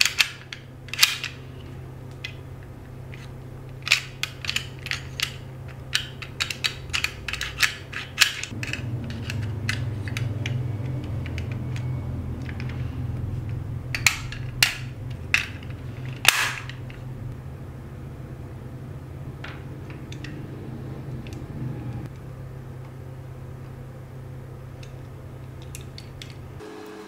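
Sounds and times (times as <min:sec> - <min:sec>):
lock parts clicking: 0:00.0 - 0:01.4, 0:02.1 - 0:12.8, 0:13.4 - 0:17.1, 0:19.4 - 0:20.4
low steady hum: 0:00.0 - 0:27.0.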